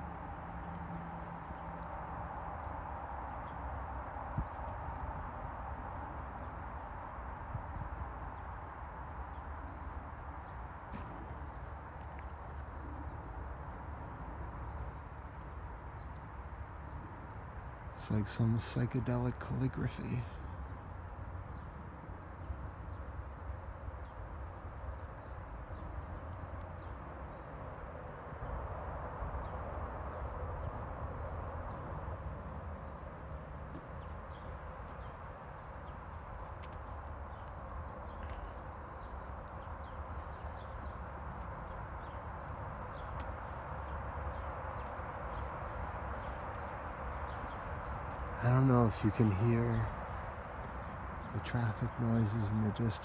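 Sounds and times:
distant traffic hum: 0:00.0 - 0:53.0
small birds chirping: 0:29.2 - 0:53.0.

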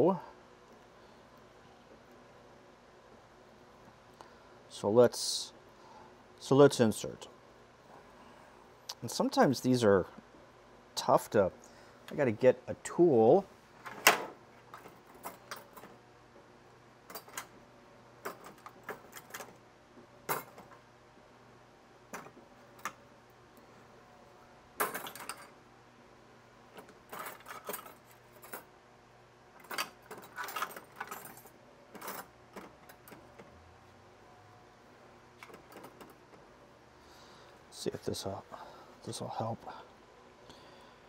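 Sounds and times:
hand tools clicking and clinking: 0:24.8 - 0:25.5, 0:26.8 - 0:28.6, 0:29.6 - 0:33.2.

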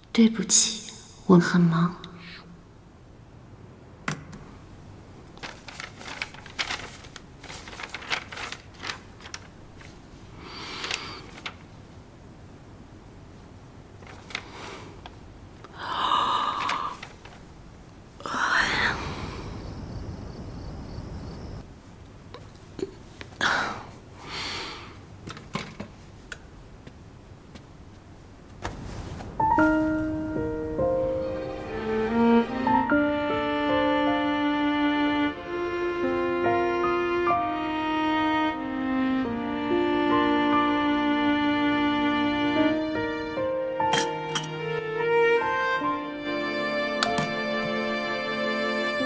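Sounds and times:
brief rustle: 0:05.4 - 0:10.0
breathy rushes of noise: 0:10.3 - 0:11.6, 0:15.7 - 0:17.3, 0:18.3 - 0:19.8.

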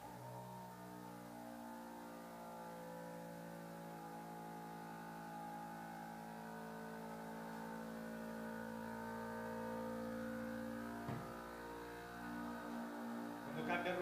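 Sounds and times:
vacuum pump humming: 0:03.8 - 0:14.0.

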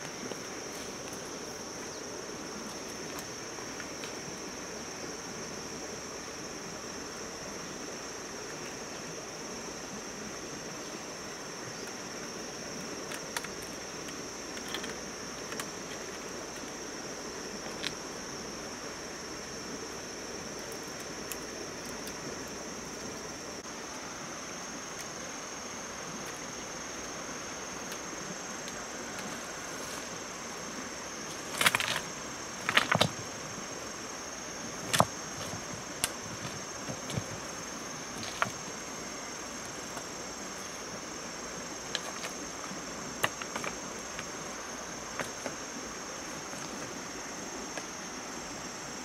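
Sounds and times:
insects chirring: 0:00.0 - 0:49.0
soft background hiss: 0:00.0 - 0:49.0
sharp clicks and knocks: 0:32.6 - 0:33.2.

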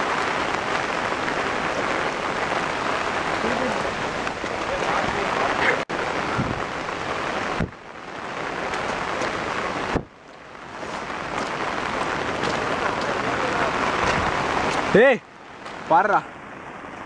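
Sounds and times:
steady rain: 0:00.0 - 0:17.0
wind on microphone: 0:05.6 - 0:07.8.

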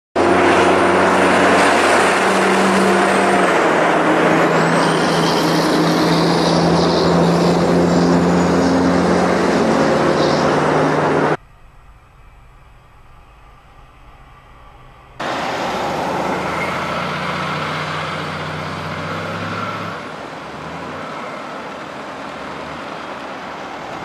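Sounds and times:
diesel truck engines: 0:00.2 - 0:24.0
heavy tyre noise: 0:00.2 - 0:24.0.

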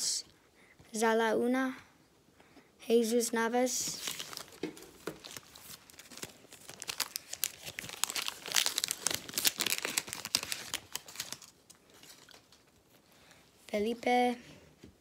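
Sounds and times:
wrapper crackling: 0:03.9 - 0:13.0.

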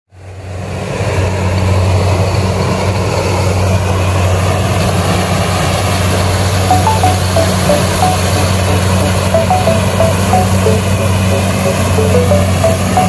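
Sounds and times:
reaper engine humming: 0:03.9 - 0:13.0.

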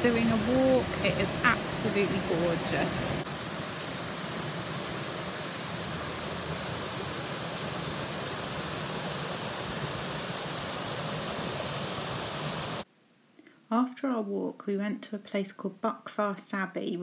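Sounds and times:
river rushing over rocks: 0:00.0 - 0:12.8.

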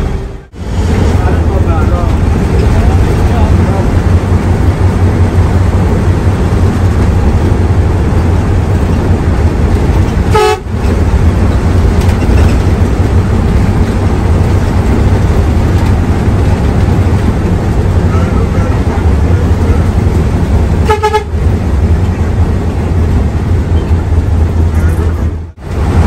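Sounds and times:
diesel engine drone: 0:00.0 - 0:26.0
road noise: 0:00.0 - 0:26.0
horn toot: 0:10.3 - 0:10.6, 0:20.8 - 0:21.4.

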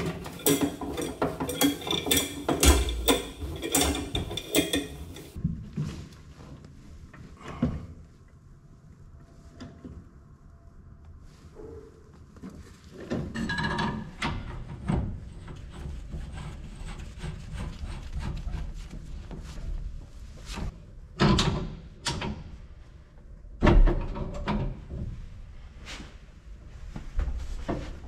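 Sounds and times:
metal tools clanking: 0:00.0 - 0:05.4.

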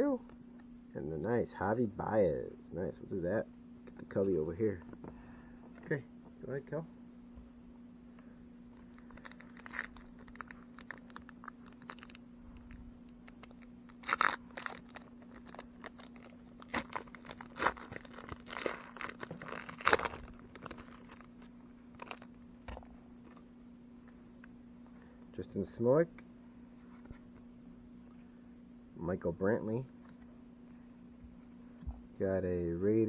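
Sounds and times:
plastic wrapper crinkling and tearing: 0:08.8 - 0:23.4.

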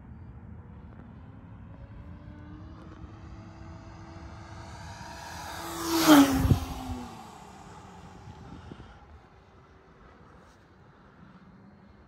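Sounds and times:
airplane whoosh: 0:03.3 - 0:09.5.

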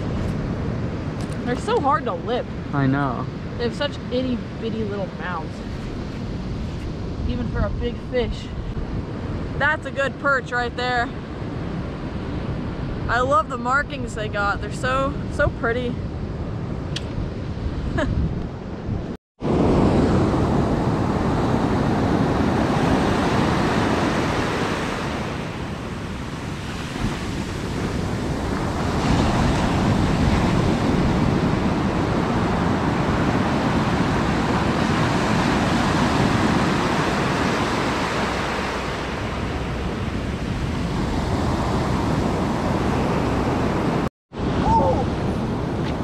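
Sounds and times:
ocean surf breaking: 0:19.4 - 0:46.0.

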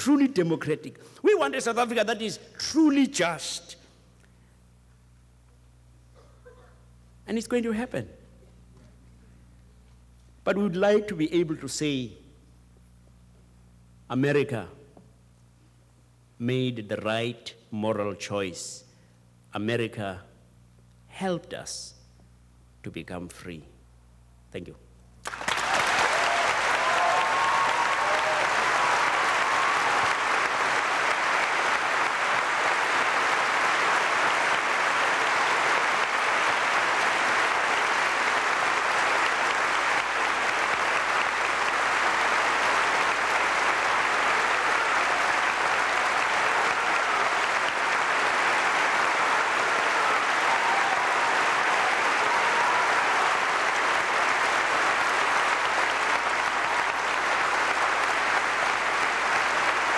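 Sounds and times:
large audience applauding: 0:25.2 - 0:59.9.

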